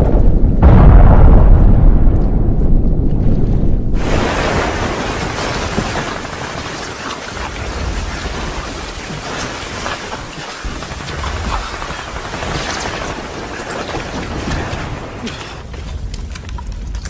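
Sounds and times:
low rumble: 0.0s - 6.8s
people splashing water: 4.0s - 16.5s.

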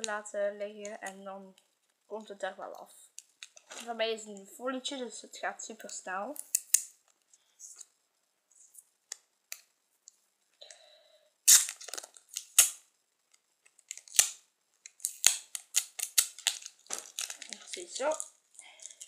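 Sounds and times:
plastic label crackling and clicking: 3.2s - 3.9s, 11.7s - 19.0s.

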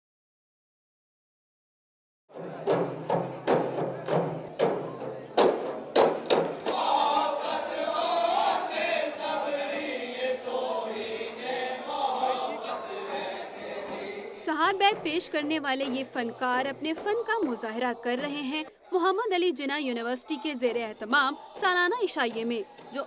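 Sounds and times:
frame drums beating: 2.3s - 8.5s, 12.7s - 18.4s
men singing in chorus: 6.7s - 18.9s, 20.2s - 21.8s.

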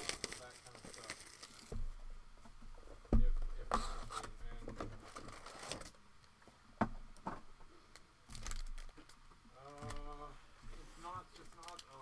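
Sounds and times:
wrappers rustling and crinkling: 0.0s - 1.7s, 7.9s - 12.0s.

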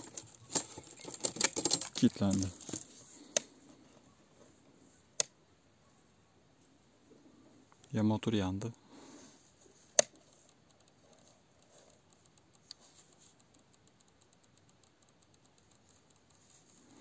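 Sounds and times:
faint tick: 11.6s - 17.0s.

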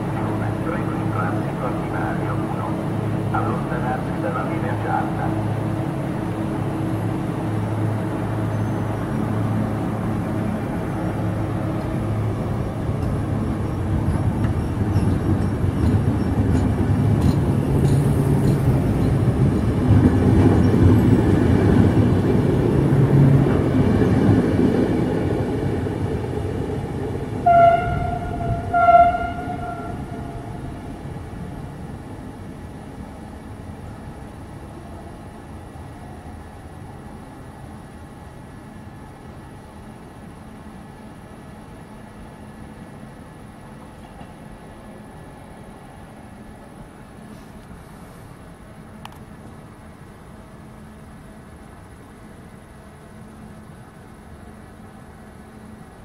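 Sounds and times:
passenger train rumbling: 0.0s - 56.0s
train horn toots: 27.4s - 30.6s.

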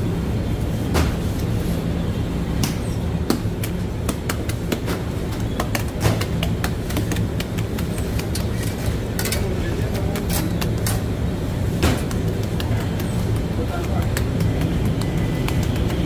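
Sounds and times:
machinery humming: 1.5s - 16.0s
sharp clicks and knocks: 2.6s - 11.1s, 11.8s - 16.0s.

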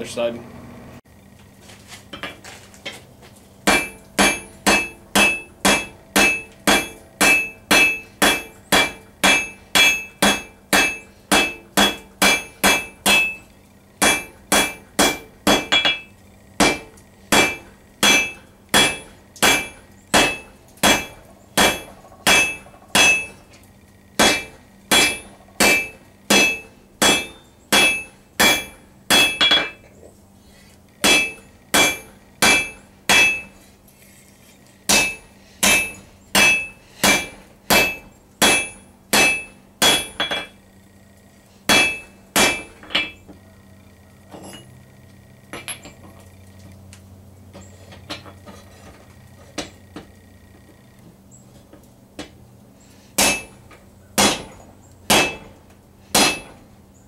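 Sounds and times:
hammer striking steel on anvil: 3.6s - 23.5s, 24.2s - 29.8s, 31.0s - 33.6s, 34.9s - 40.6s, 41.7s - 43.2s, 53.2s - 56.6s.

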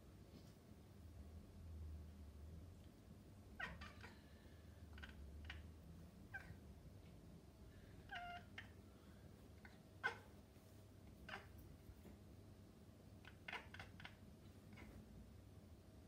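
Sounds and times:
cat chirping meows: 3.6s - 4.2s, 8.0s - 8.8s, 11.2s - 11.6s, 13.2s - 15.0s.

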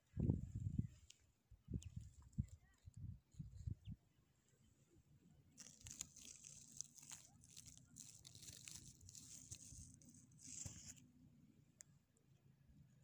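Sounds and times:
close-up rustling and crackling: 5.5s - 11.1s.

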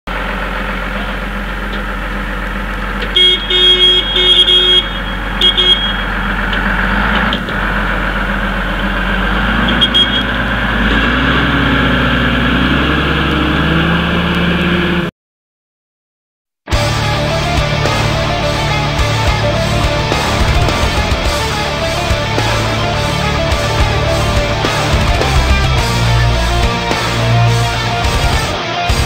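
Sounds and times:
vehicle engine running: 0.1s - 15.1s, 16.7s - 29.0s
short high beeps: 3.2s - 6.1s, 9.7s - 10.4s.

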